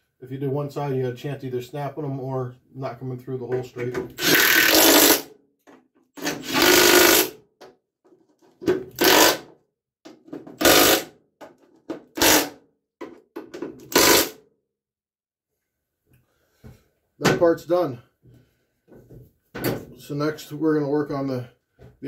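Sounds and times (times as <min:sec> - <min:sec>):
impact wrench hammering bolts: 0:08.6 - 0:09.5, 0:10.1 - 0:14.4.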